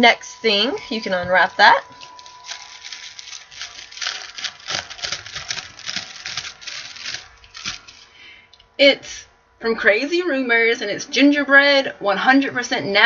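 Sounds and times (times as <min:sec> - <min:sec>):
tissue paper crinkling: 0:01.4 - 0:08.2.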